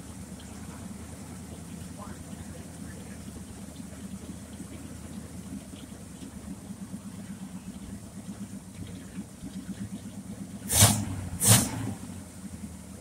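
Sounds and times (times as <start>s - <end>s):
small engine running: 0.0s - 13.0s
high-pressure spray blasts: 10.7s - 11.8s.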